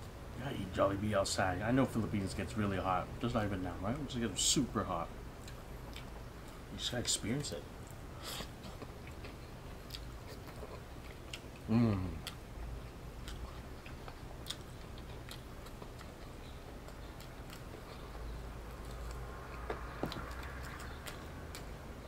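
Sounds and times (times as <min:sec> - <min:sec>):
low steady hum: 0:00.0 - 0:22.0
person chewing: 0:05.4 - 0:06.6, 0:07.8 - 0:21.7.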